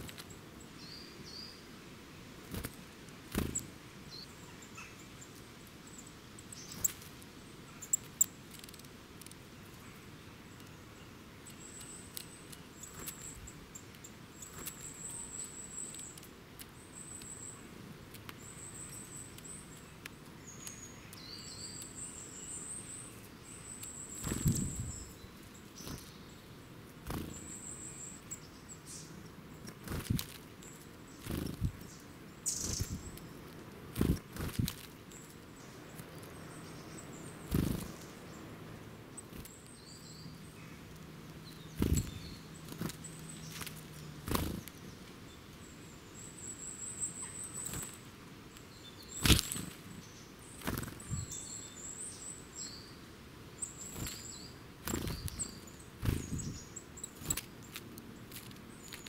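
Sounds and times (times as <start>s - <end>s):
bird wing flutters: 2.5s - 3.7s, 24.2s - 24.9s, 27.0s - 27.4s, 29.8s - 30.4s, 31.2s - 31.8s, 32.6s - 33.0s, 33.9s - 35.0s, 37.5s - 38.0s, 41.8s - 44.7s, 49.2s - 49.8s, 50.6s - 51.2s, 53.9s - 54.2s, 54.8s - 56.6s.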